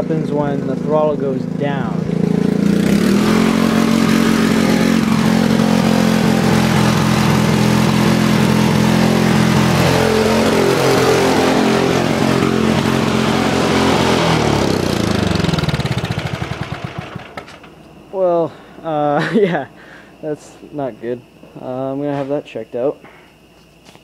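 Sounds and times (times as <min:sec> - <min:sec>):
small engine running fast: 0:00.0 - 0:17.6.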